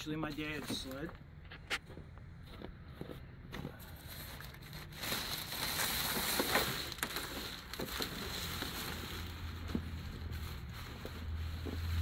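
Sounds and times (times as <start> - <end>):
fabric cover rustling: 3.9 - 12.0.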